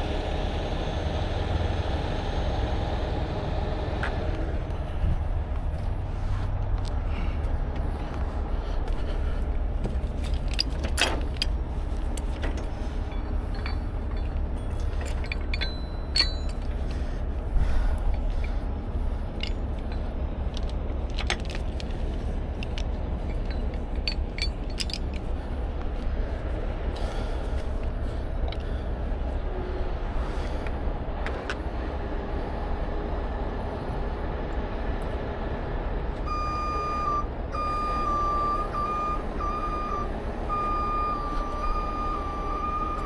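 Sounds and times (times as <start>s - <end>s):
truck engine rumble: 0.0s - 43.0s
chain clinking and rattling: 9.8s - 26.1s.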